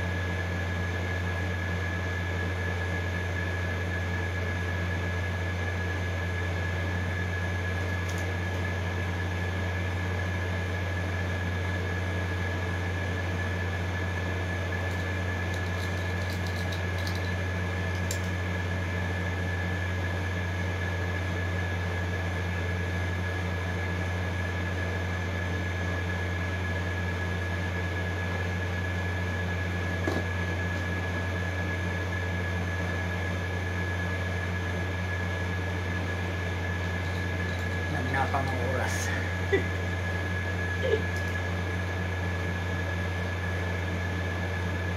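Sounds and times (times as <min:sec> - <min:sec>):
low machine hum: 0:00.0 - 0:44.9
thin whine: 0:26.4 - 0:44.9.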